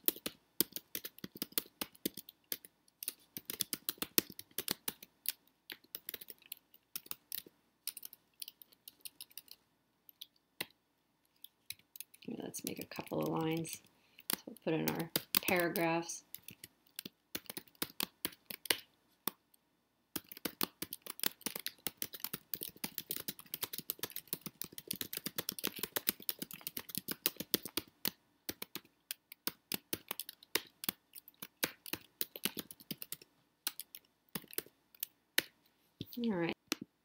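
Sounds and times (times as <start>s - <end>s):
computer keyboard typing: 0.0s - 10.7s, 11.3s - 19.4s, 20.2s - 36.3s.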